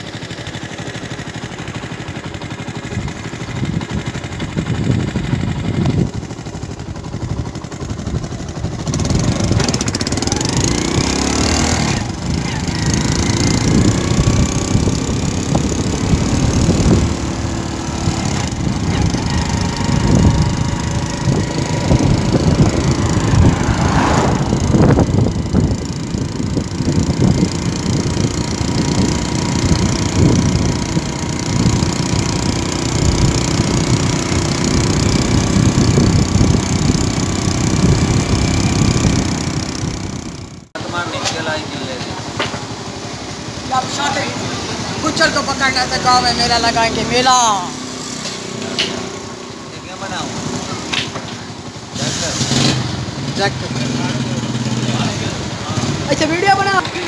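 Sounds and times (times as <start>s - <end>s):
vehicle engine running: 0.0s - 57.0s
wind rushing over microphone: 3.5s - 40.7s.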